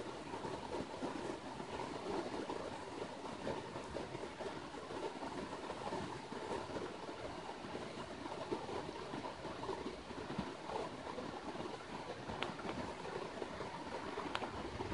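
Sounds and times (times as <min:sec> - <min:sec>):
river flowing over stones: 0:00.0 - 0:14.9.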